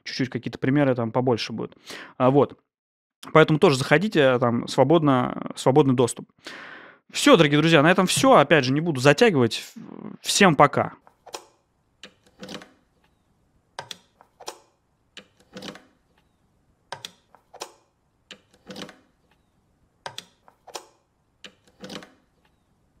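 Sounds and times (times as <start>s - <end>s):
cable jack plugs clicking: 16.9s - 22.6s.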